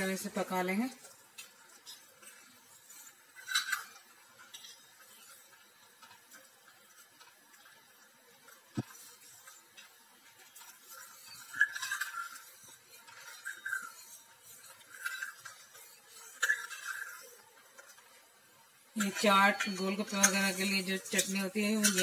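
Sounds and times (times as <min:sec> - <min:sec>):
ladle scraping steel pot: 0:10.4 - 0:17.4.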